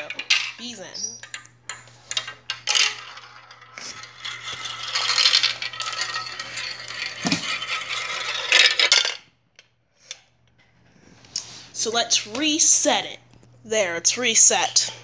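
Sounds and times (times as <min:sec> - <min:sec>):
marbles clattering on plastic track: 0:00.0 - 0:09.2.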